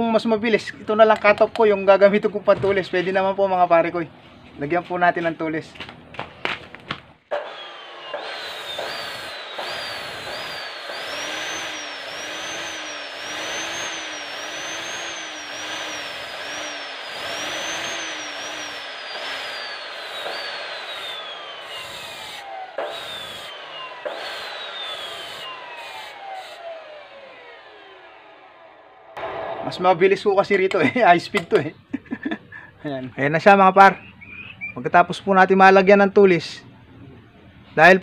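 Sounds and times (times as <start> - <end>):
cut-off saw motor whine: 7.3 - 31.0.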